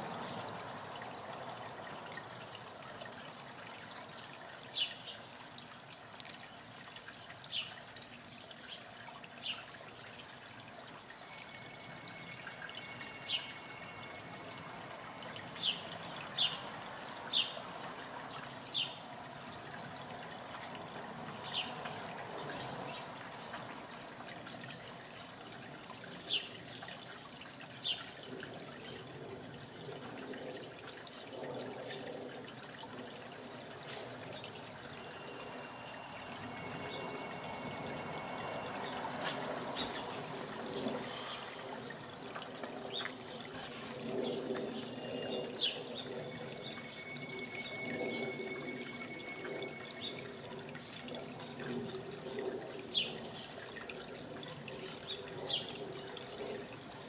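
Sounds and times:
long steady high tones: 11.0s - 15.4s, 34.5s - 39.8s, 44.8s - 51.1s.

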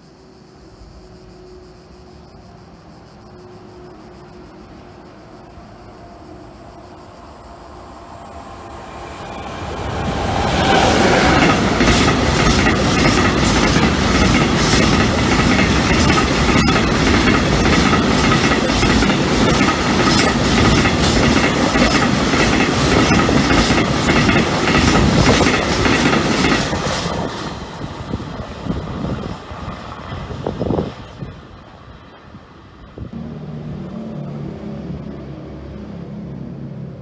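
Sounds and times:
train wheels on rail: 0.6s - 36.0s
clicks of wheels over rail joints: 10.6s - 27.4s.

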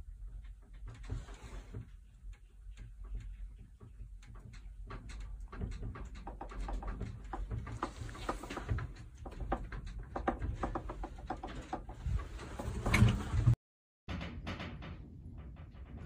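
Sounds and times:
furniture rattling and knocking: 3.1s - 16.0s.

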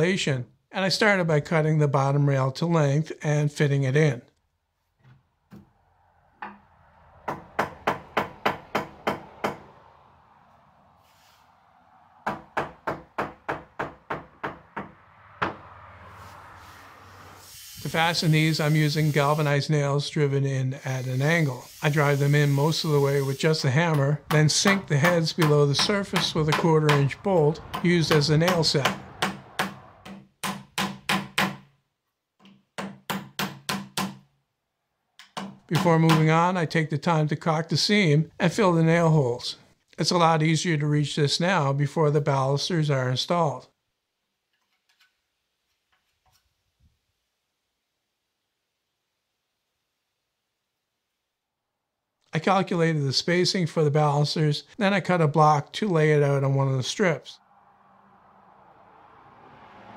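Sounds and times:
hammer striking wood: 6.4s - 6.6s, 7.2s - 9.7s, 12.2s - 15.6s, 23.9s - 31.8s, 32.4s - 34.3s, 35.2s - 36.4s.

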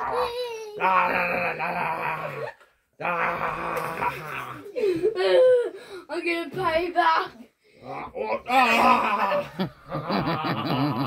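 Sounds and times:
person wailing: 0.0s - 5.7s, 8.2s - 10.8s.

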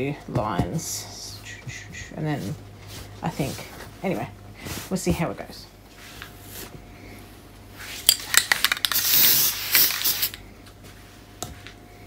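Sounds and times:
aerosol can clicks and rattles: 8.1s - 10.4s
aerosol spray hissing: 9.0s - 10.4s.

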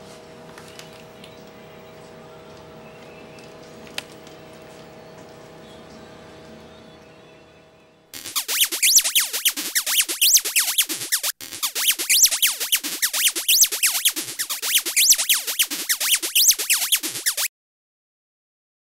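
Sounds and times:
synthesizer pitch sweeps: 8.2s - 17.5s.

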